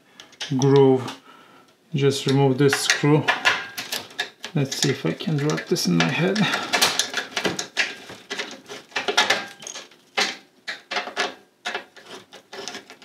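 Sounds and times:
screwdriver clicking and scraping metal: 3.8 - 13.0.

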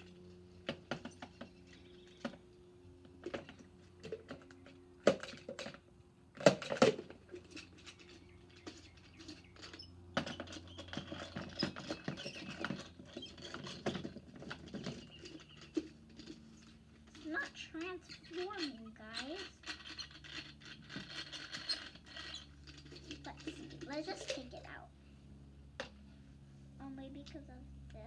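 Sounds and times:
child speaking: 17.2 - 19.6, 23.2 - 24.9, 26.8 - 28.0.

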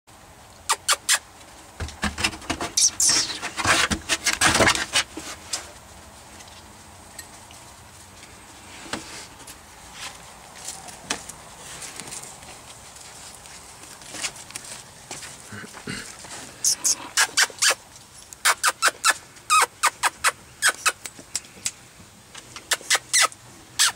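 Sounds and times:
puppies moving on wooden floor: 1.8 - 16.6
high squeak falling in pitch: 2.8 - 3.4.

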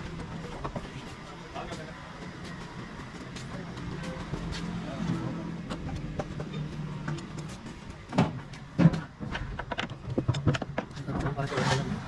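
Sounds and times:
tools clicking and knocking: 5.7 - 11.4.

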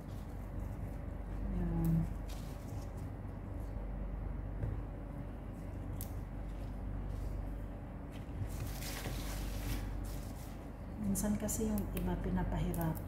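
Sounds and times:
leaves rustling and crinkling: 0.0 - 3.8, 5.4 - 10.8
steady low hum: 0.0 - 13.0.

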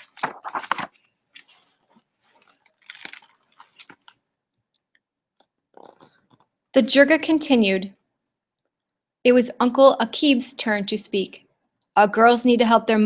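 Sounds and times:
book pages turning: 0.0 - 4.2.

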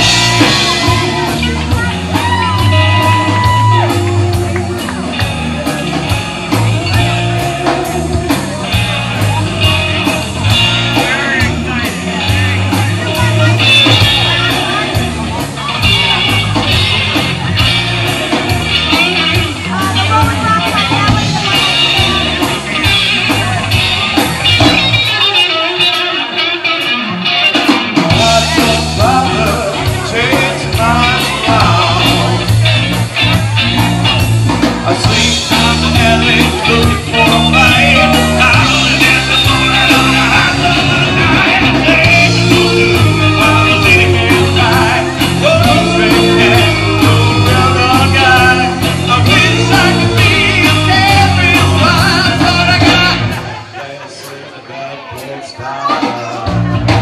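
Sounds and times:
person singing: 0.0 - 16.8, 28.0 - 32.9, 34.5 - 57.0
electric bass: 0.0 - 53.7, 56.4 - 57.0
electric guitar: 0.0 - 53.8
drums: 0.0 - 57.0.

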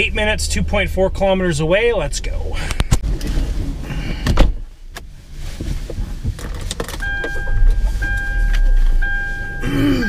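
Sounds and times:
car door shutting: 3.0 - 9.6
electronic warning tone: 7.0 - 10.0.

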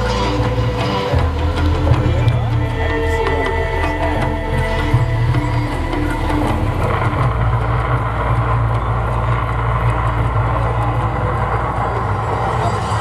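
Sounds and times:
deep rumble of fire effects: 0.0 - 13.0.

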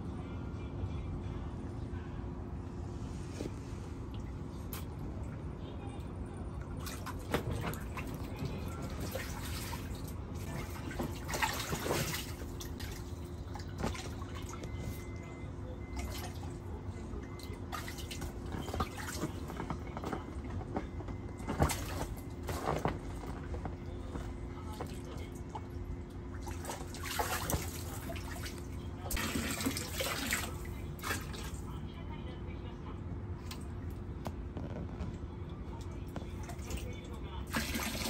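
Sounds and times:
steady low hum: 0.0 - 38.0
water splashing in paddling pool: 6.7 - 15.1, 17.4 - 20.1, 26.3 - 31.7, 36.5 - 38.0.

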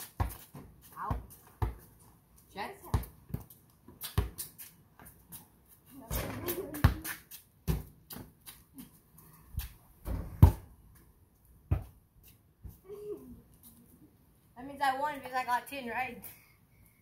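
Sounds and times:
basketball bouncing on concrete: 0.0 - 2.0, 2.8 - 5.2, 6.0 - 8.6, 10.0 - 10.7, 11.7 - 12.0.

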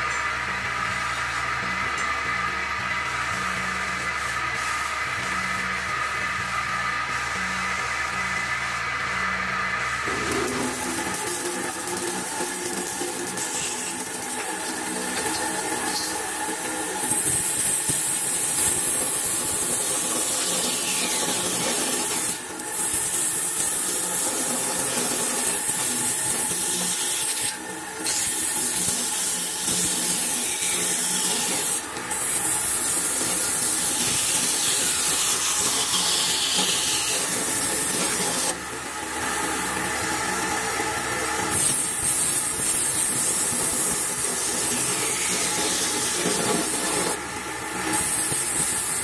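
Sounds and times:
bandsaw cutting wood: 10.0 - 49.0.

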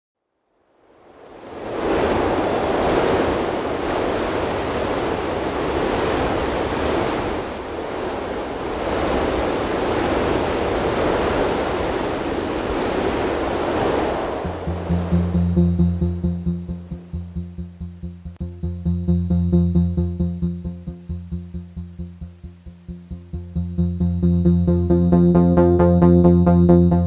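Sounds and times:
steady rushing noise: 0.8 - 18.8.

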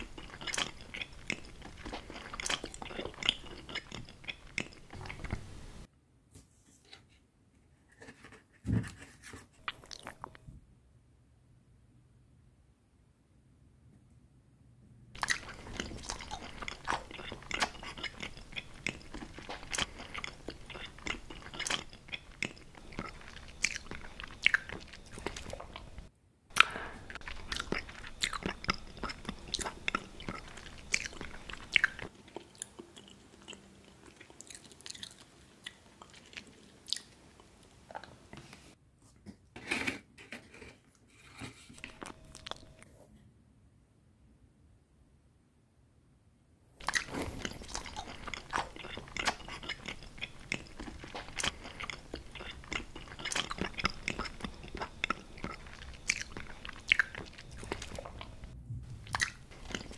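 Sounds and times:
crunchy biting and chewing: 0.0 - 5.4, 15.2 - 37.1, 46.8 - 59.9.

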